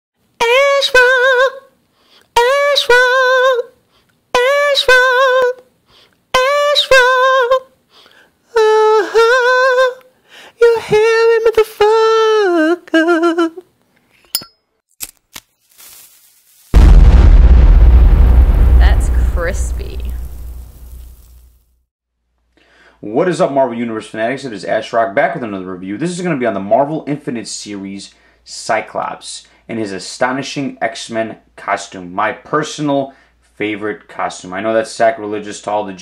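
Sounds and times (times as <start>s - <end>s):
person humming wordless phrases: 8.5s - 13.7s.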